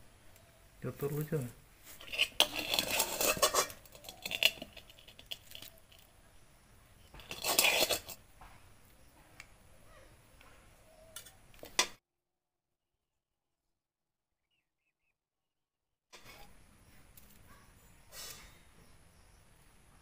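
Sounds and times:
dishes clattering and scraping: 0:02.0 - 0:06.1, 0:07.1 - 0:08.2.

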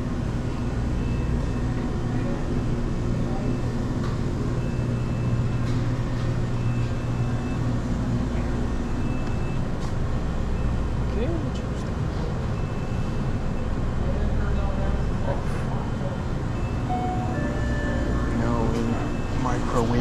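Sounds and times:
low machine hum: 0:00.0 - 0:20.0
faint high tone: 0:16.9 - 0:20.0.

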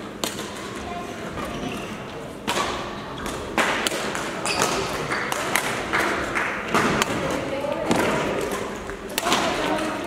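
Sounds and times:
racket hitting shuttlecock: 0:02.4 - 0:09.8.

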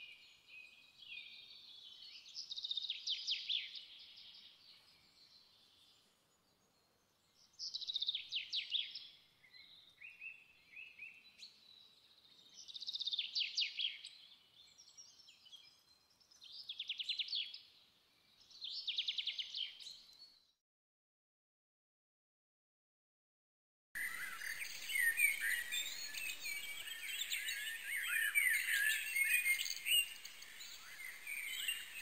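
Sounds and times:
soft bird chirps: 0:00.0 - 0:20.6, 0:24.0 - 0:32.0
songbird trilling: 0:24.0 - 0:32.0.

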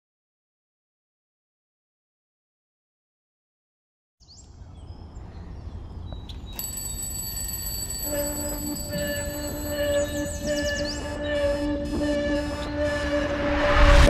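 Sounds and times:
high steady ringing tone: 0:06.3 - 0:13.1
low held tone: 0:06.6 - 0:14.0.

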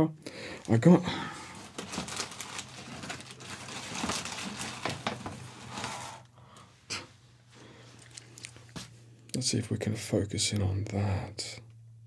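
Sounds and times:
hands rummaging small objects: 0:01.6 - 0:05.7.

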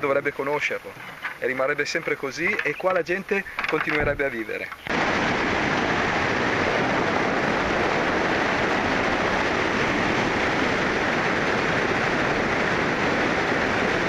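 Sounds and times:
whitewater rapids rushing: 0:04.9 - 0:14.0.

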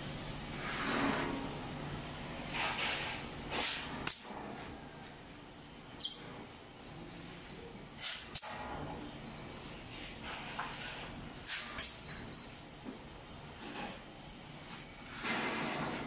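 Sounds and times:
pneumatic clip gun firing: 0:03.5 - 0:04.4, 0:08.0 - 0:08.7, 0:11.4 - 0:12.0.

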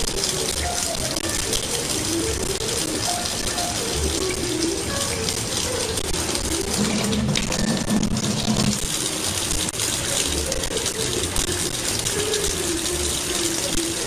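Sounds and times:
tap running into sink: 0:06.5 - 0:09.7.

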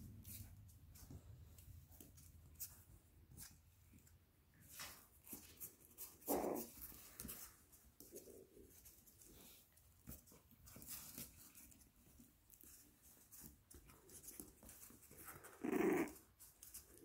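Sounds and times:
puppies scuffing and ticking: 0:00.0 - 0:17.0
puppy whimpering cry: 0:15.5 - 0:16.2.

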